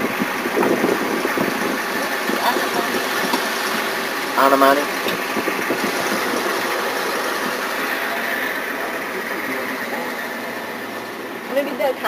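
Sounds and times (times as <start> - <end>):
car engine and road noise: 0.0 - 12.0.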